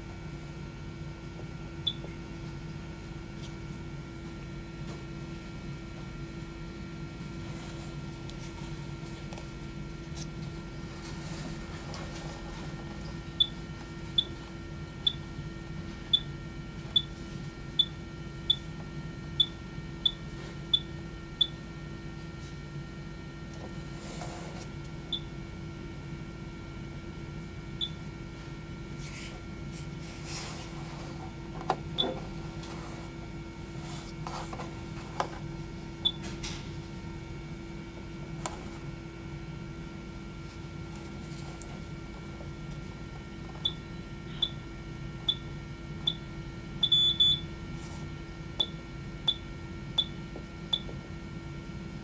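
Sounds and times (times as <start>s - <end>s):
electrical hum: 0.0s - 52.0s.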